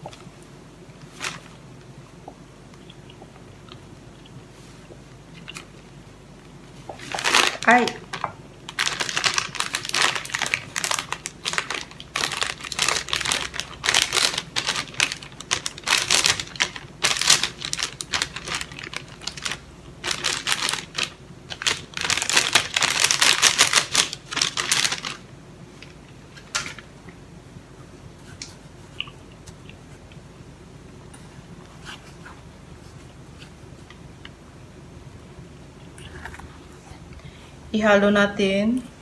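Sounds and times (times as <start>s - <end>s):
plastic bag crinkling: 1.0s - 1.6s, 6.9s - 26.8s.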